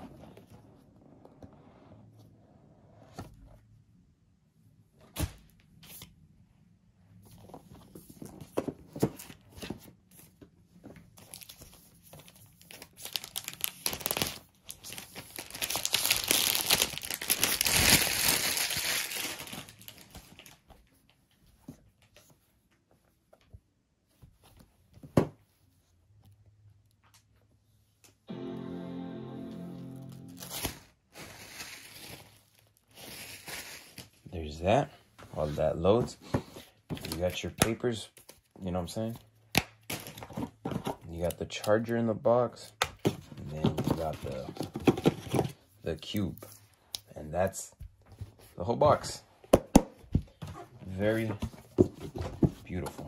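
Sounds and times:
paper tearing and crinkling: 12.6 - 20.5, 30.4 - 34.2.

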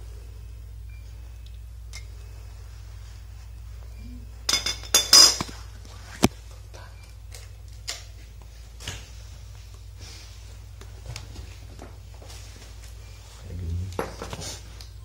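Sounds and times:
metal tools clattering: 4.5 - 5.5.

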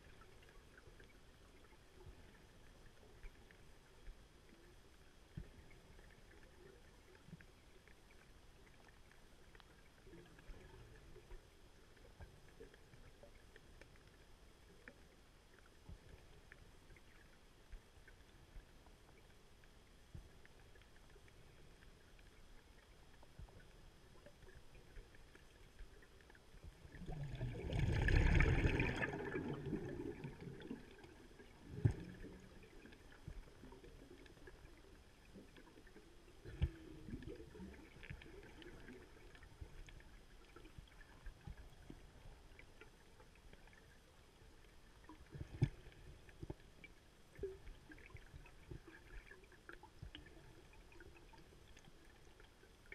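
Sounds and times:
faint underwater hiss: 0.0 - 52.9
scuba air bubbles gurgling: 23.2 - 43.9.

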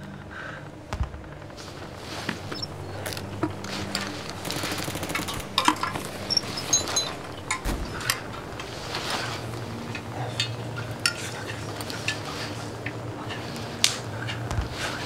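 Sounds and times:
rustling: 0.7 - 15.0.

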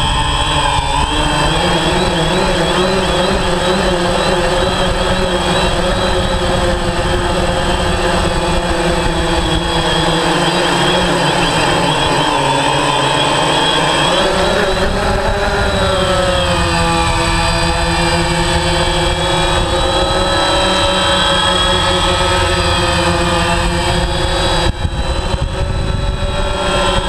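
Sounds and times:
drone motors whining: 0.0 - 27.0
low rushing noise: 4.5 - 27.0.

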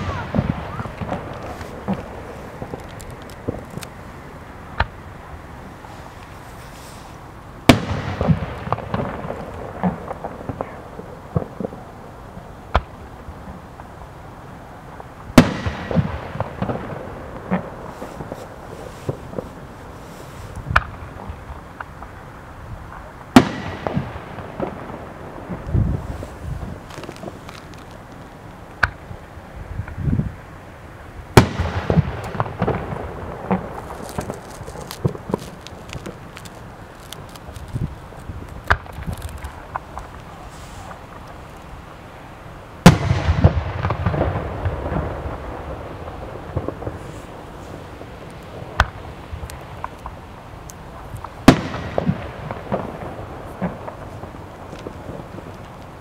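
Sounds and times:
rolling echoes and booms: 0.0 - 5.9, 7.6 - 11.8, 31.2 - 36.9, 42.8 - 50.3, 51.2 - 56.0
fireworks bangs: 0.0 - 12.1, 15.0 - 22.2, 22.8 - 29.2, 31.3 - 56.0
fireworks crackling: 0.0 - 56.0
firework shell bursting: 31.4 - 41.8.

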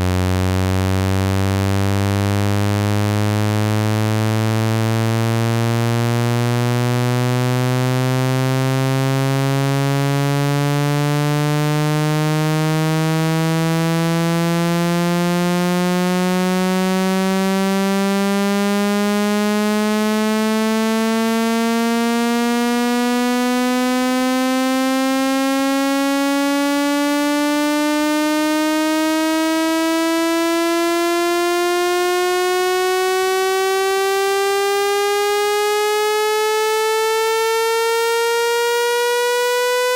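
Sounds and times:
buzzy electronic tone sweeping upward: 30.7 - 39.9.

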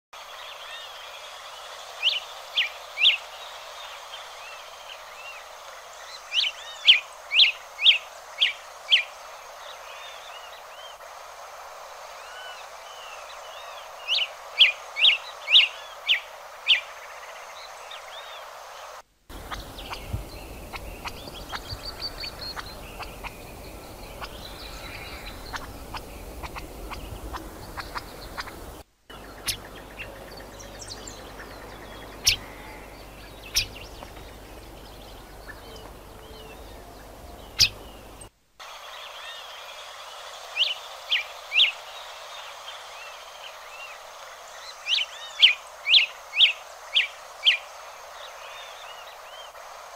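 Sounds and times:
background hiss: 0.2 - 49.9
faint busy bird chirping: 19.3 - 38.3.

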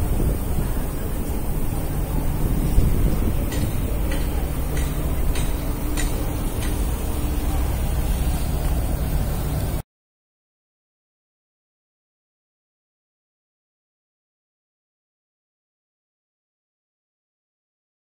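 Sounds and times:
distant city traffic: 0.0 - 9.8
wind buffeting microphone: 0.0 - 9.8.

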